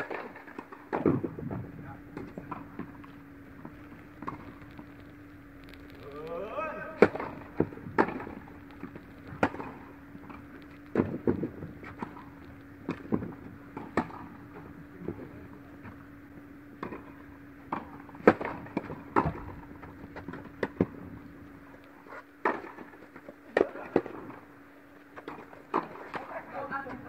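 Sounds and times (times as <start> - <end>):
steady hum: 0.0 - 27.0
tennis ball hit and bouncing: 7.0 - 12.2, 12.8 - 14.6, 16.8 - 19.5, 25.2 - 26.3.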